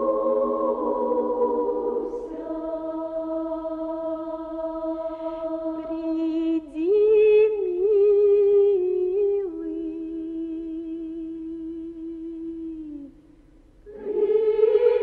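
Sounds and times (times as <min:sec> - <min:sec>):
woman singing unaccompanied: 0:04.7 - 0:13.2.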